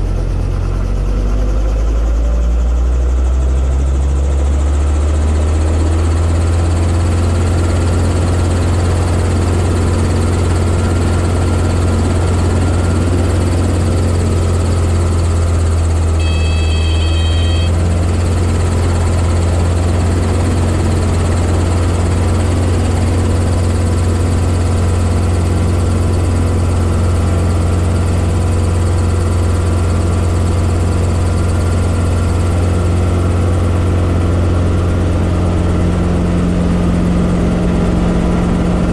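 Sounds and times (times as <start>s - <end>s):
helicopter engine and rotor drone: 0.0s - 38.9s
high electronic beep: 16.2s - 17.9s.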